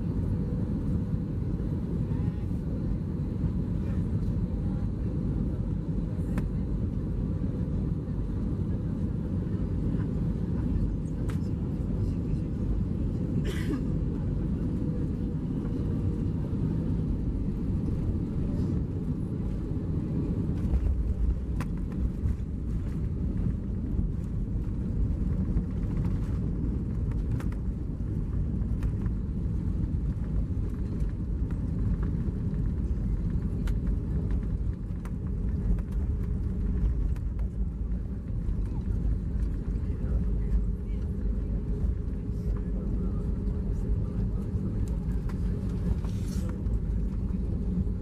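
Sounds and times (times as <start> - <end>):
low rumble of engines and wheels: 0.0 - 48.0.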